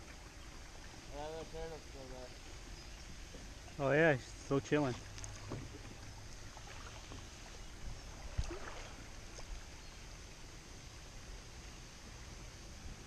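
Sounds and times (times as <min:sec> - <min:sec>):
paddle dipping into water: 0:00.0 - 0:10.3
water dripping from paddle: 0:04.8 - 0:10.2.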